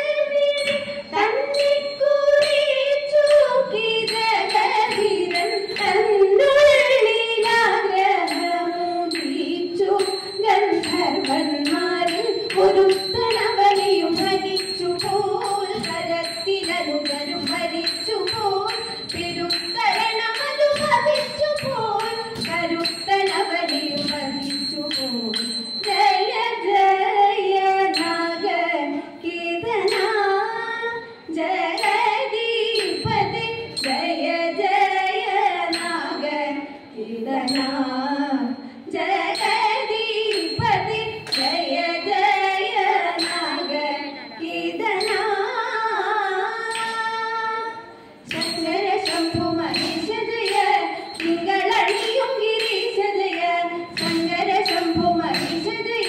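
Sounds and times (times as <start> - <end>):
women singing: 0.0 - 56.0
hand claps: 48.3 - 56.0.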